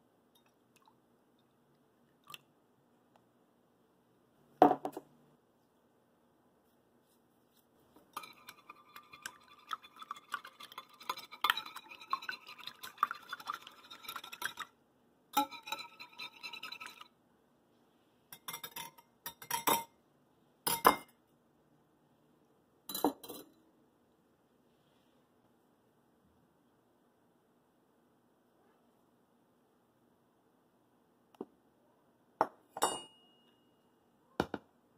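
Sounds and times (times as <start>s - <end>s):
whisk clinking against glass bowl: 8.2s - 14.7s, 15.4s - 17.1s.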